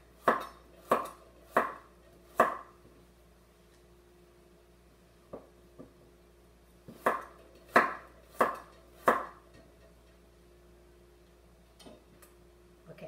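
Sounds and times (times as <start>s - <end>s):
cleaver chopping on wooden board: 0.2s - 2.7s, 6.9s - 9.4s.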